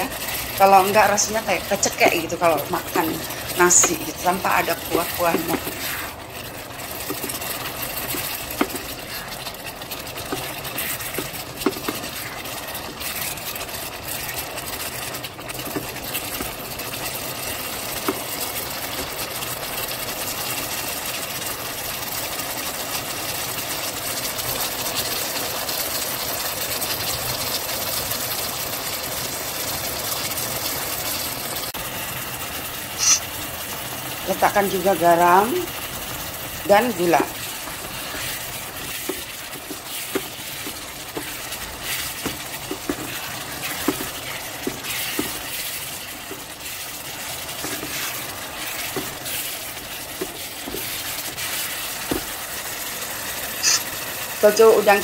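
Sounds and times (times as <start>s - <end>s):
sauce bubbling and sizzling: 0.0s - 55.0s
wooden spatula scraping a pan: 2.9s - 16.5s, 36.7s - 52.3s.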